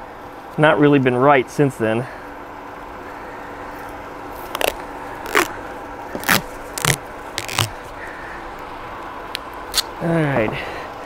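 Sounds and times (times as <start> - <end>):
tape ripping off a roll: 4.4 - 7.9.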